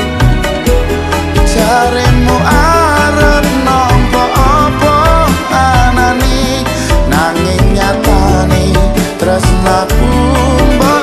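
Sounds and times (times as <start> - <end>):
pop song with band: 0.0 - 11.0.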